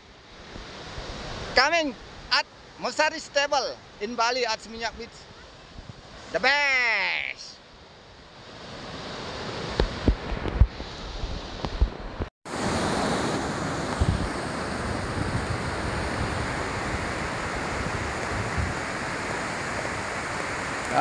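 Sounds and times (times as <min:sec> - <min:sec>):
ocean surf breaking: 0:00.0 - 0:21.0
wind buffeting microphone: 0:13.5 - 0:20.8.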